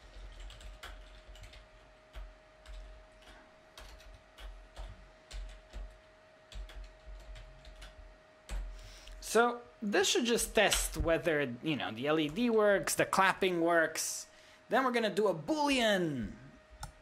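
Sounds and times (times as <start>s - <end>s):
computer keyboard typing: 0.0s - 8.7s.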